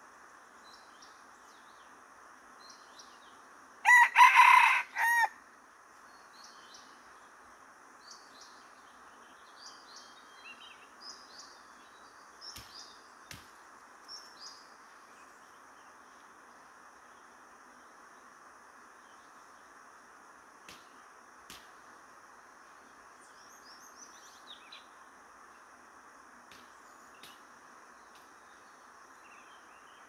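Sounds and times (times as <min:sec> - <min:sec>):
rooster crowing: 0:03.8 - 0:05.4
small birds chirping: 0:08.0 - 0:16.4.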